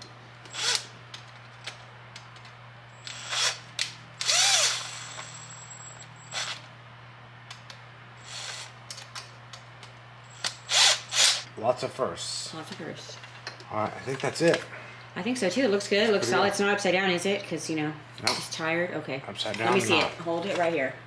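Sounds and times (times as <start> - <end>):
cordless driver motor whine: 0.4 - 0.9, 3.0 - 6.7, 8.2 - 8.8, 10.3 - 11.5.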